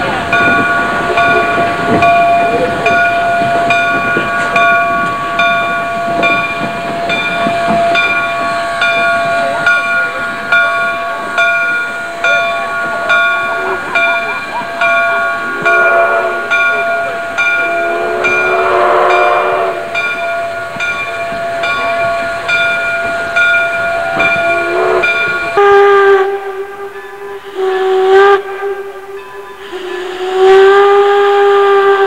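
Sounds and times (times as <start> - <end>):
steam hiss: 0.0 - 32.0
steam locomotive chime whistle: 0.0 - 32.0
lower-pitched steam whistle blasts: 14.5 - 20.0, 24.0 - 32.0.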